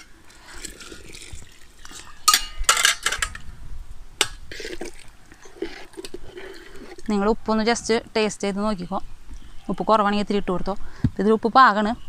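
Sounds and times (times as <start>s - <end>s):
hot water pouring into pot: 0.0s - 2.4s
ladle clinking against metal pot: 2.2s - 3.4s.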